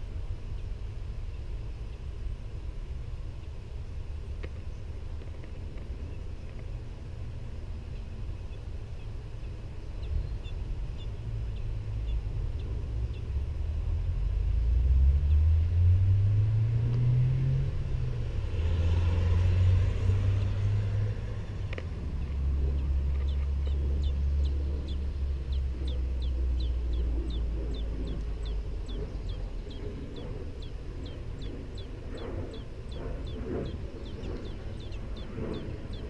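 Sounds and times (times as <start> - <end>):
low engine drone: 0.0 - 36.0
faint high bird chirps: 22.2 - 36.0.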